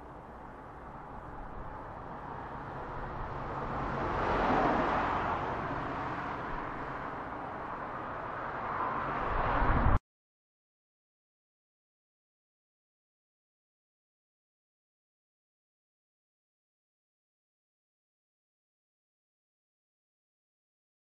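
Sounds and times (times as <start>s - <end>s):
road traffic passing: 0.0s - 10.0s.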